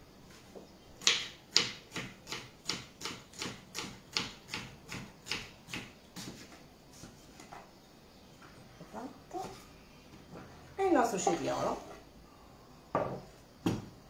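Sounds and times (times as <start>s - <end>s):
knife chopping on wooden board: 1.0s - 6.4s.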